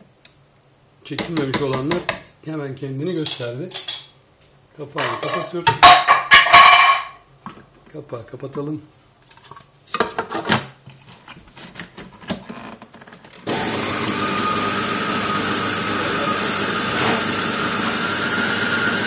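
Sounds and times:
food processor motor grinding: 13.4 - 19.0.

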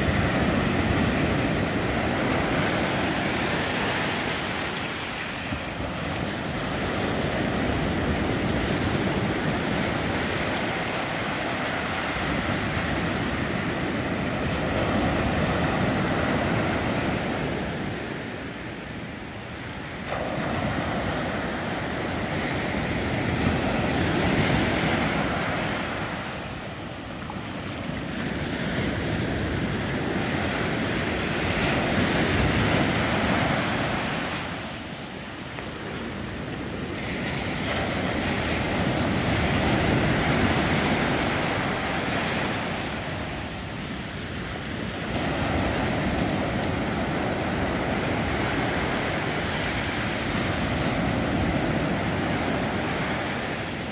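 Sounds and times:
ocean surf breaking on beach: 0.0 - 53.9.

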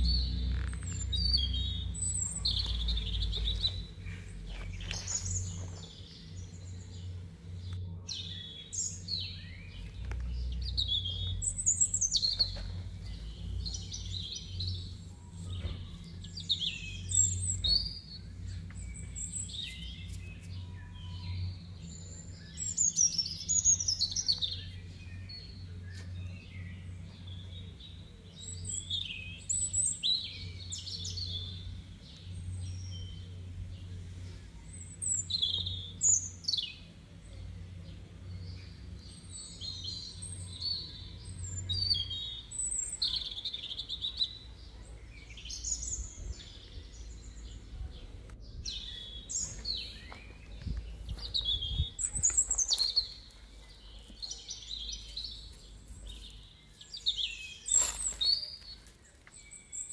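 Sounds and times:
steady low rumble: 0.0 - 28.8, 45.8 - 54.1
songbirds chirping and singing: 0.0 - 59.9.

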